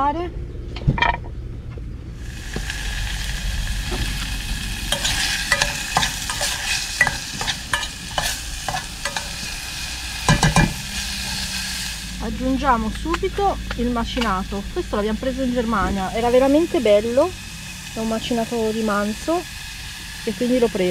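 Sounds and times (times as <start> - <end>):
vegetables sizzling in a pan: 2.2 - 20.9
spoon scraping a pan: 4.9 - 11.9.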